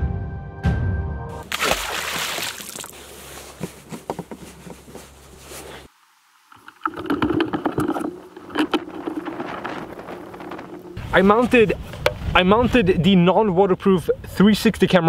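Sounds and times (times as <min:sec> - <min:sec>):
droplets pattering: 0:01.4 - 0:03.0
splash in lake water: 0:01.4 - 0:03.3.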